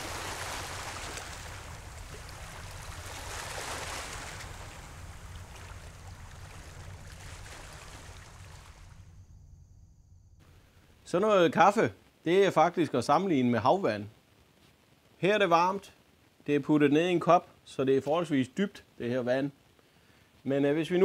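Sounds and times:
shallow water washing: 0.0 - 9.2
low wind rumble: 0.0 - 11.0.

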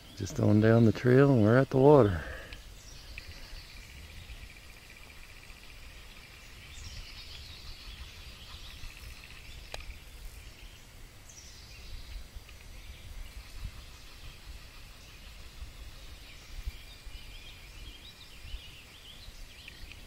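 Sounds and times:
bird calling: 0.0 - 20.0
low wind rumble: 0.0 - 20.0
high insect trill: 2.8 - 11.0.

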